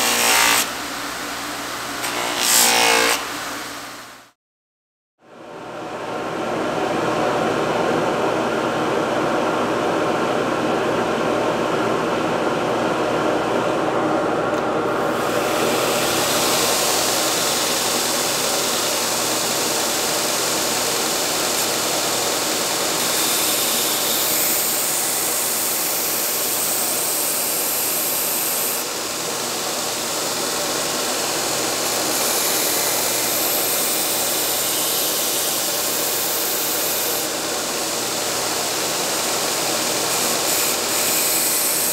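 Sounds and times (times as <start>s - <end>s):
belt grinder running: 15.1s - 41.9s.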